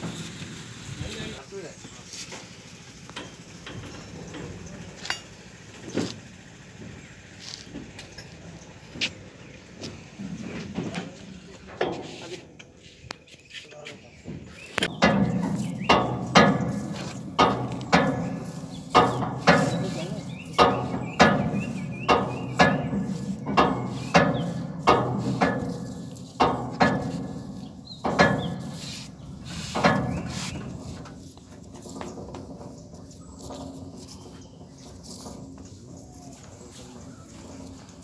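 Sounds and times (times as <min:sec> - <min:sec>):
wooden and metal knocks ringing: 0:14.8 - 0:28.8, 0:29.7 - 0:31.0.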